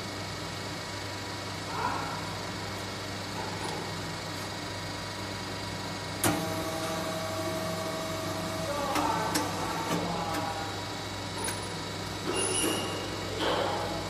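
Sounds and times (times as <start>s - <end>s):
press humming: 4.9s - 12.3s.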